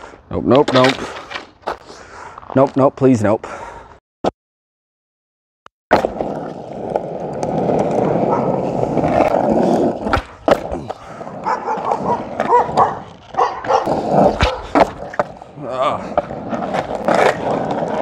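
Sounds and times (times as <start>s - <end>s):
skateboard clacking: 5.9s - 15.4s
skateboard wheels rolling on asphalt: 5.9s - 18.0s
dogs barking: 8.3s - 8.6s, 11.3s - 14.9s.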